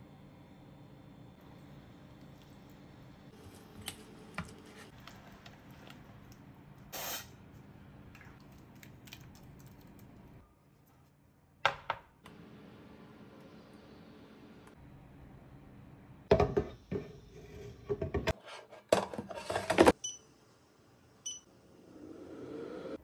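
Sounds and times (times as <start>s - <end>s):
oil spray bottle hiss: 6.9s - 7.3s.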